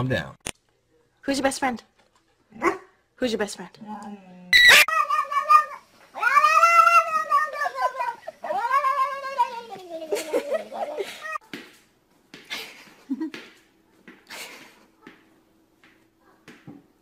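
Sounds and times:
cat yowling: 4.6 - 10.1.

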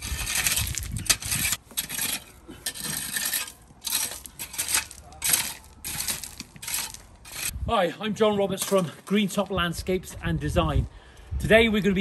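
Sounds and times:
metal rake scraping crushed stone: 0.0 - 7.6, 8.4 - 9.5.

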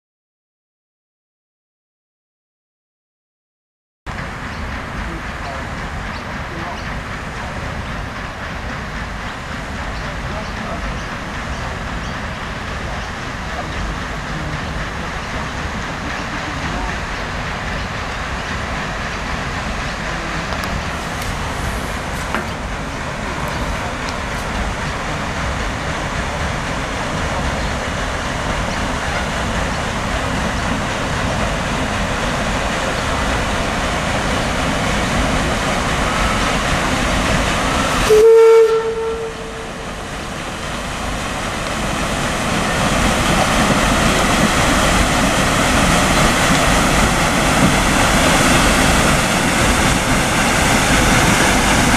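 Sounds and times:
paddle steamer engine churning: 4.1 - 51.9
steam whistle blast: 38.0 - 39.8.

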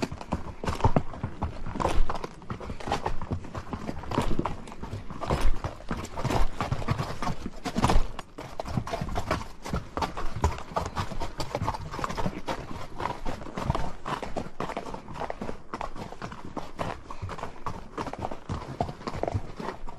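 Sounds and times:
horse hooves clip-clopping: 0.0 - 19.9.

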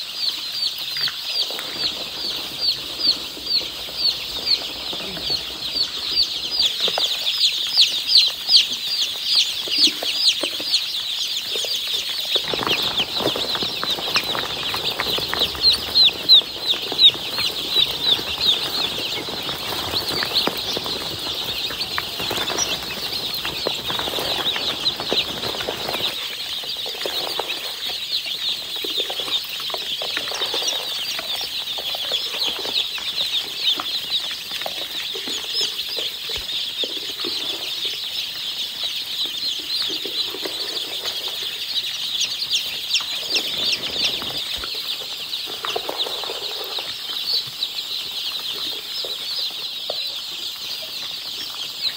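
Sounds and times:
chicks peeping: 0.0 - 51.9.

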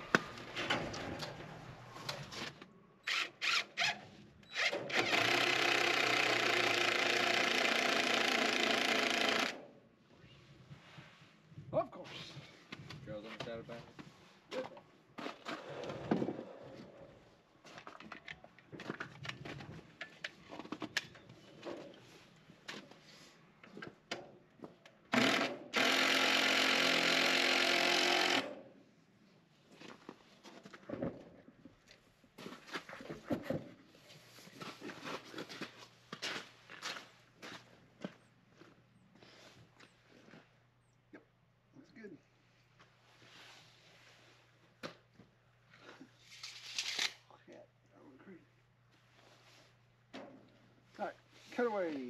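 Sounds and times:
cordless drill running: 4.5 - 9.6, 25.2 - 28.4.

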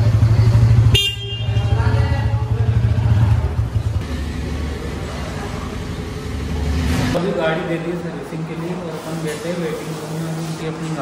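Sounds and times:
motorcycle engine idling: 0.0 - 6.8.

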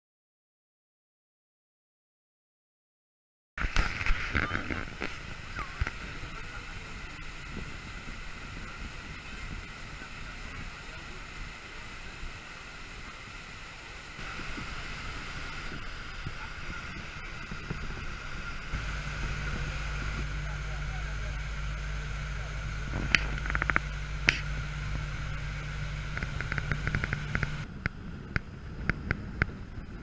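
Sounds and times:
boat engine noise: 3.6 - 30.0
water rushing from wake: 3.6 - 30.0
wind on microphone: 3.6 - 30.0.

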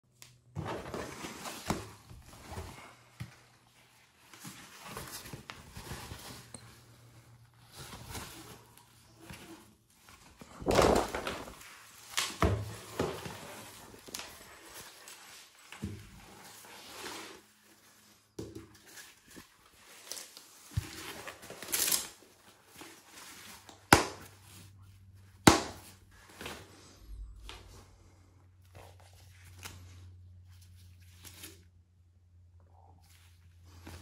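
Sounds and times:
padding rustling: 0.5 - 27.7.

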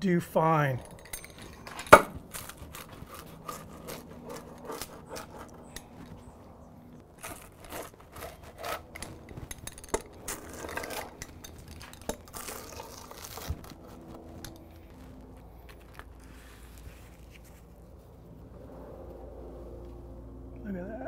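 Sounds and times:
pizza cutter crackling tortilla: 1.7 - 6.3, 7.0 - 17.6.

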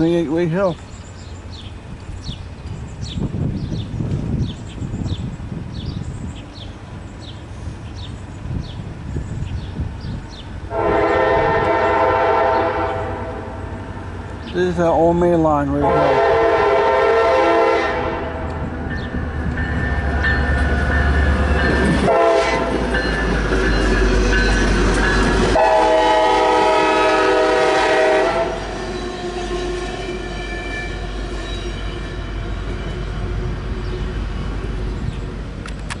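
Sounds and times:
train rumbling past: 0.0 - 36.0
train air horn blasts: 10.7 - 13.6, 15.8 - 18.6, 22.0 - 22.8, 25.6 - 33.3.

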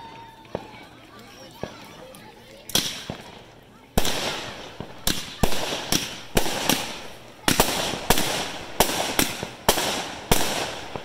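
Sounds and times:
fireworks bangs: 2.7 - 11.0.

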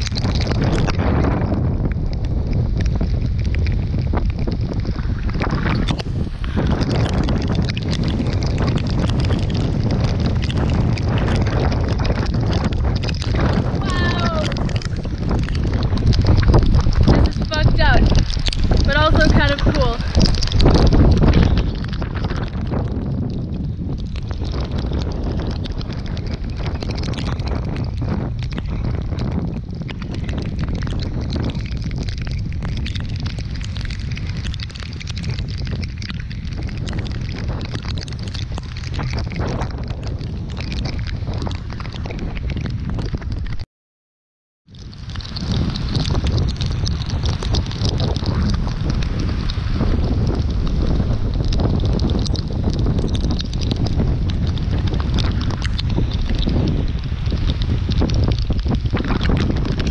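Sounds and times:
rain ticking on camera: 0.0 - 43.6, 44.6 - 59.9
sharp crackles and slaps: 0.0 - 43.6, 44.7 - 59.9
strong wind roaring on microphone: 0.0 - 43.6, 44.6 - 59.9
waves breaking: 2.4 - 22.7.

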